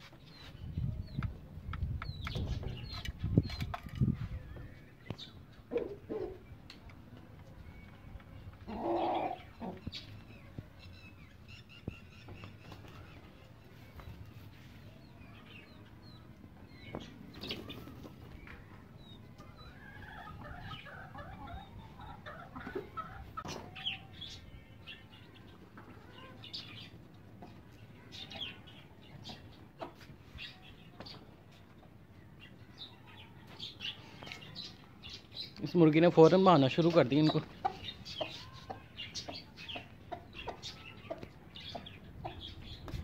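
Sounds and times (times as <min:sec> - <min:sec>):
chicks cheeping: 0:00.0 - 0:43.0
hens clucking: 0:02.1 - 0:10.3, 0:17.0 - 0:24.5, 0:25.4 - 0:31.8, 0:35.9 - 0:43.0.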